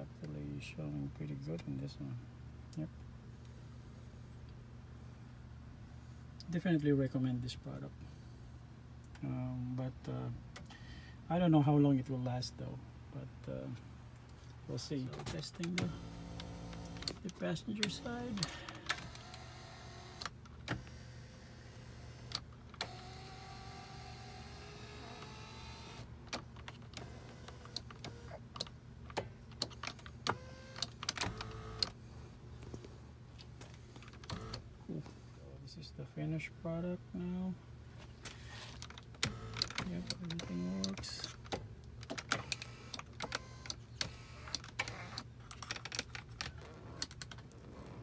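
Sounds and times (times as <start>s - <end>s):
seat motor humming: 15.6s - 26.1s, 26.7s - 32.2s, 33.8s - 34.7s, 39.2s - 41.3s, 42.2s - 45.3s.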